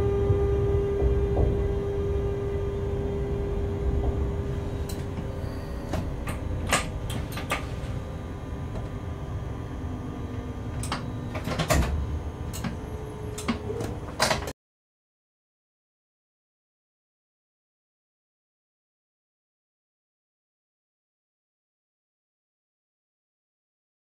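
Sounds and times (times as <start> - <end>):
locomotive cab rumble and hum: 0.0 - 14.5.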